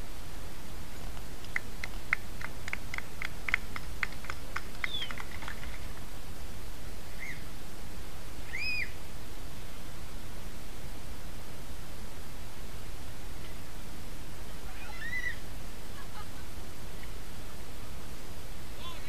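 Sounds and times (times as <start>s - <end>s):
low background noise: 0.0s - 19.0s
songbird chirping and whistling: 7.1s - 7.4s, 8.4s - 9.0s.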